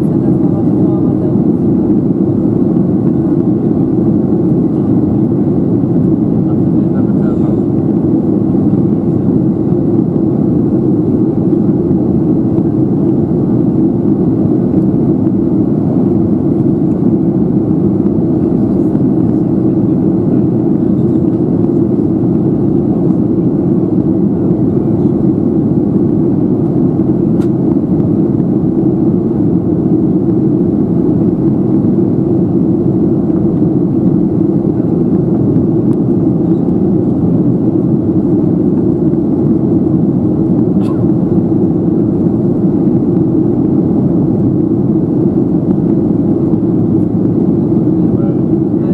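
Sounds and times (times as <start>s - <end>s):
aircraft cabin engine rumble: 0.0s - 48.9s.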